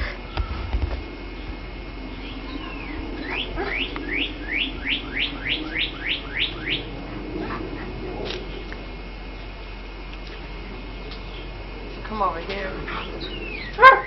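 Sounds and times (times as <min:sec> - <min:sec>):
bird whistling rising notes: 0:02.0 - 0:07.0, 0:13.2 - 0:13.8.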